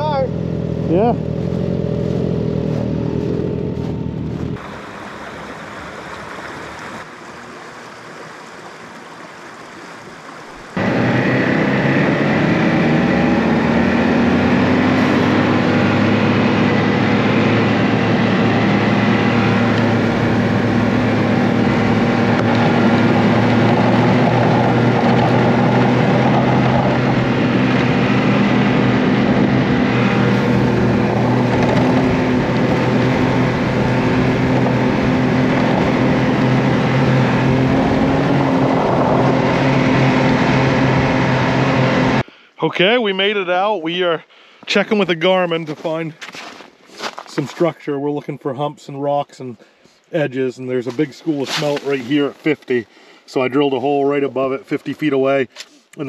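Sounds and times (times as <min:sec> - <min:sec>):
snowmobile engine running: 0:00.0 - 0:07.0, 0:10.8 - 0:43.6, 0:50.8 - 0:55.4
small stream running: 0:04.6 - 0:10.9.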